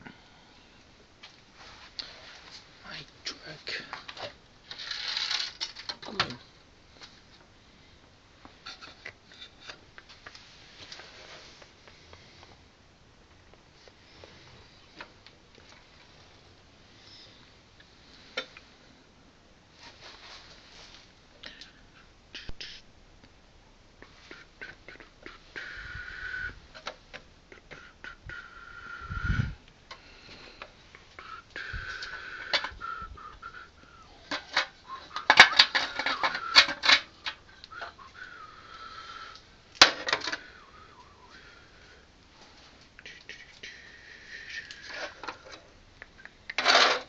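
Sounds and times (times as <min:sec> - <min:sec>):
plastic toy truck clicking and rattling: 0:04.1 - 0:06.4, 0:34.3 - 0:38.0, 0:39.8 - 0:40.4, 0:46.5 - 0:47.0.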